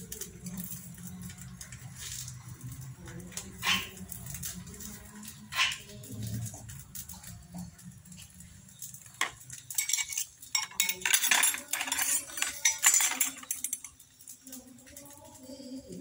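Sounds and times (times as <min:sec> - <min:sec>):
dishes and utensils clattering: 0:03.6 - 0:04.4, 0:07.2 - 0:14.0.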